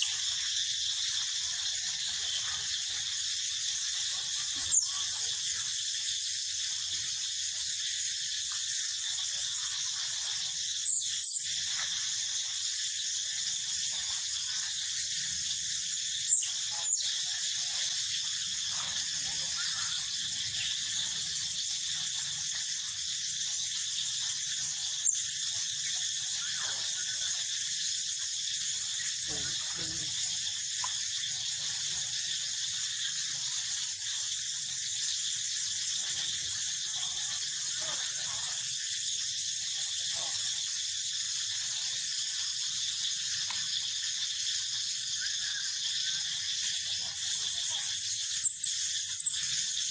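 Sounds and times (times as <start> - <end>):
insect chorus drone: 0.0 - 49.9
sharp high chirps: 4.5 - 5.2, 25.0 - 25.6.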